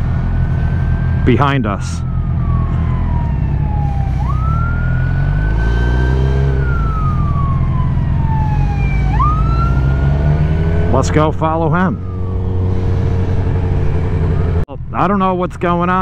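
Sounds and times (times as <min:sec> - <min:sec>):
police siren wailing: 0:00.0 - 0:14.6
motorcycle rumble: 0:00.0 - 0:16.0.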